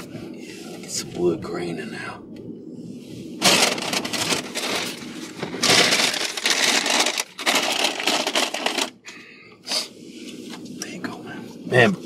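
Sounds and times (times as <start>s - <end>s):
paper bag rustling: 3.4s - 8.9s.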